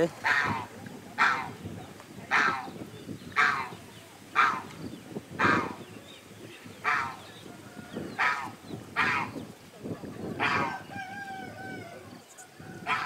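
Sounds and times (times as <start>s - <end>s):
guinea fowl calling: 0.2s - 1.6s, 2.3s - 6.0s, 6.7s - 9.5s, 10.4s - 13.0s.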